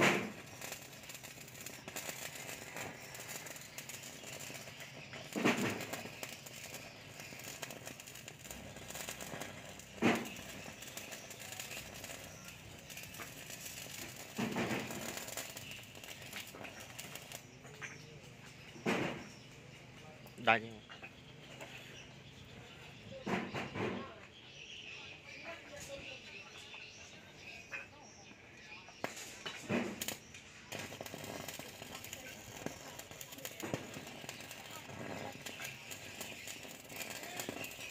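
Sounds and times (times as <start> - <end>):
welding arc crackling and sizzling: 0.0 - 20.8, 28.6 - 37.9.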